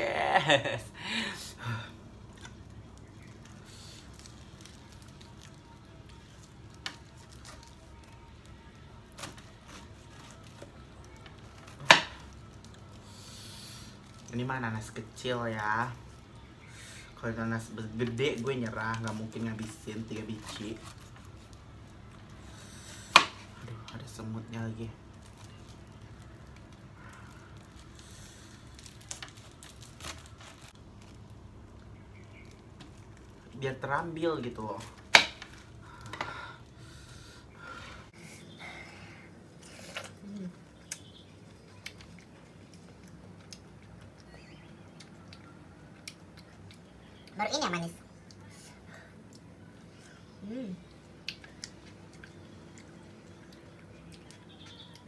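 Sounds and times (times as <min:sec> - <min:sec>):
low steady hum: 0:00.0 - 0:55.0
stiff leaves rustling: 0:24.1 - 0:36.1.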